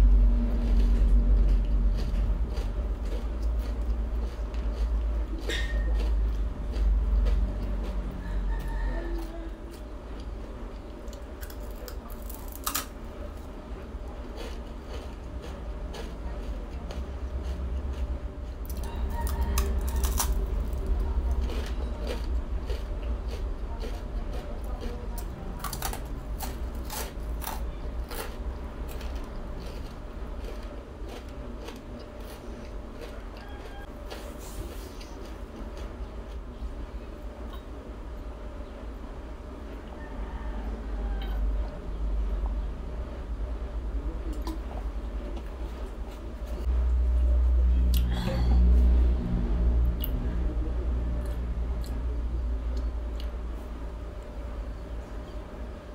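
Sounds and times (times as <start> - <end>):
low rumble: 0.0 - 5.4, 36.4 - 55.9
crispy rice crunching: 0.2 - 8.0, 9.8 - 36.5.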